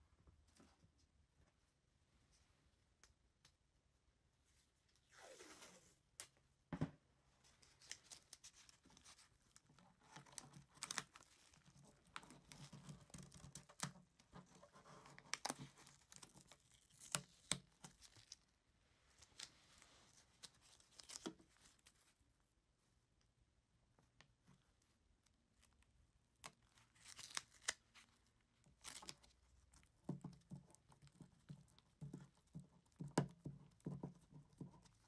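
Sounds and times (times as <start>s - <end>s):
tape sticky crackling and peeling: 26.4s - 28.1s.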